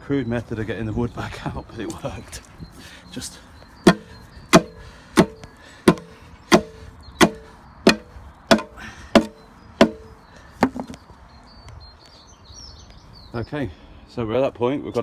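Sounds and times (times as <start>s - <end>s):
hammer striking wooden board: 3.9s - 10.9s.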